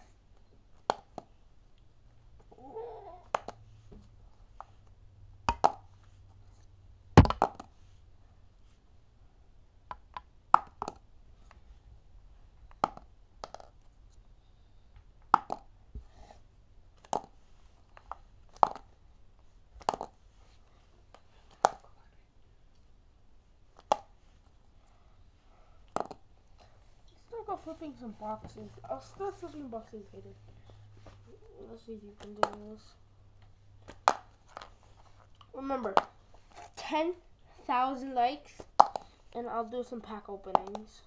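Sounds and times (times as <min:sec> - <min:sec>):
plastic marker clacking on magazine: 0:32.2 - 0:32.7.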